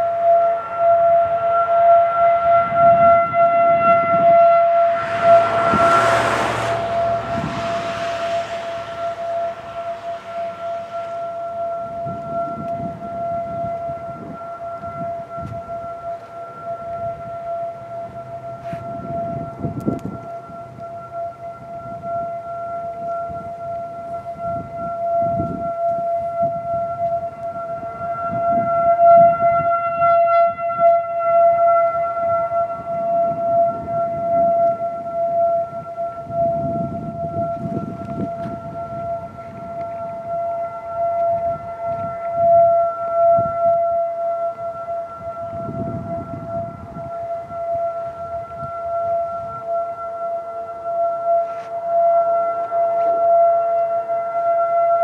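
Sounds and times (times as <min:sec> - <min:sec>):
distant warning siren: 0:00.0 - 0:55.0
rush of noise: 0:04.2 - 0:12.2.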